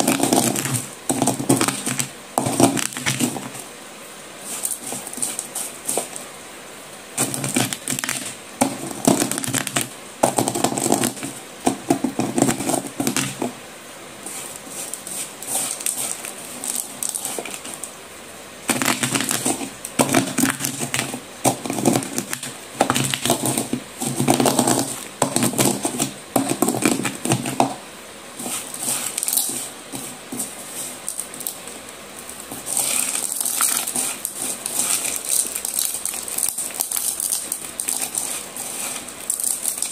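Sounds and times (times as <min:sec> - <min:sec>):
gritty crunching clatter in a bowl: 0:00.0 - 0:03.6, 0:14.3 - 0:17.9, 0:18.7 - 0:27.8, 0:32.3 - 0:39.9.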